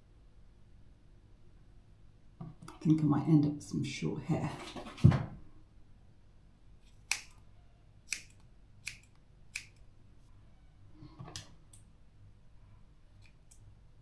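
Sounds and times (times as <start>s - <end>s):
scissors snipping hair: 6.9s - 7.4s, 8.1s - 9.8s.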